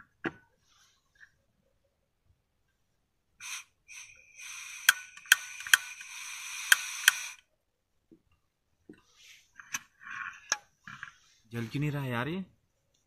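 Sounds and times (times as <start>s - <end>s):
gas stove hissing: 3.4s - 7.5s.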